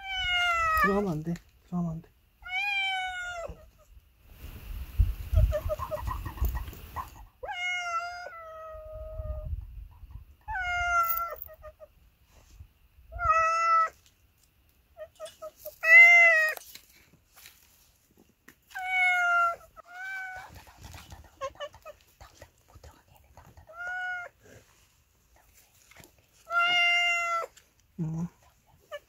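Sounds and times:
cats meowing: 0.0s - 1.0s, 2.4s - 3.9s, 7.4s - 9.4s, 10.4s - 11.9s, 13.2s - 14.0s, 15.0s - 16.6s, 18.7s - 22.1s, 23.6s - 24.4s, 26.4s - 27.6s.

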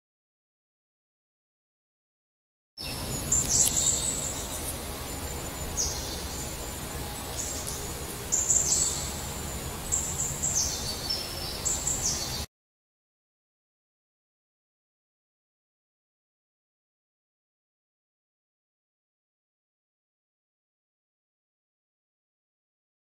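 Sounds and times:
birds chirping: 2.8s - 12.5s
outdoor background hiss: 2.8s - 12.5s.

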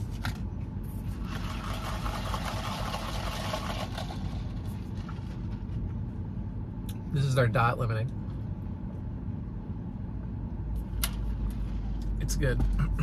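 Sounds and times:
car engine idling: 0.0s - 7.1s.

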